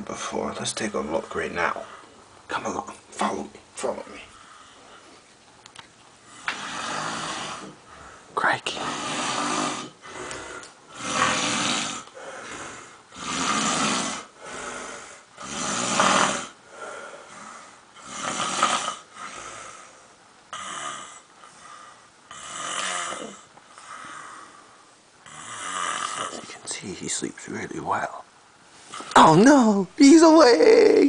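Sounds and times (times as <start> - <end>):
quiet breathing: 1.7 - 2.4, 4.0 - 5.4, 6.2 - 26.8
person snoring loudly: 6.4 - 7.8, 8.7 - 16.6, 17.3 - 19.6, 22.3 - 23.5, 25.2 - 26.5.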